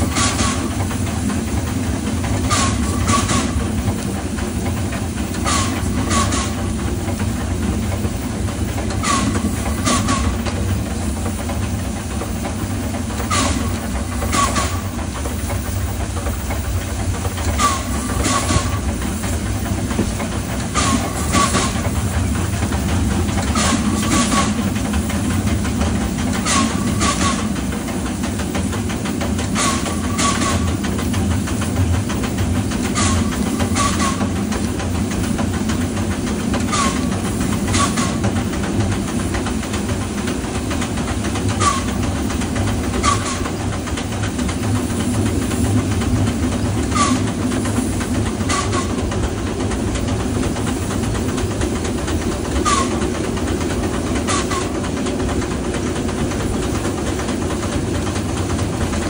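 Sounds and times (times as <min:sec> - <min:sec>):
steam locomotive rumble: 0:00.0 - 0:59.0
wheel clicks over rail joints: 0:00.0 - 0:59.0.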